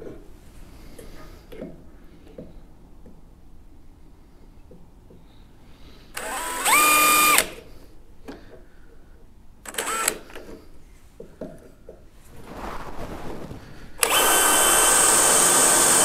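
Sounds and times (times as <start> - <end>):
power drill whining: 6.2 - 7.6, 9.7 - 10.4, 14.0 - 16.0.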